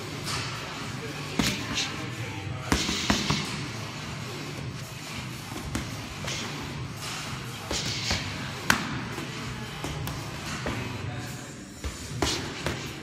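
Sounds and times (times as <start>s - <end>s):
gloves and shin guards striking: 2.6s - 3.8s, 5.3s - 11.1s, 11.8s - 13.0s.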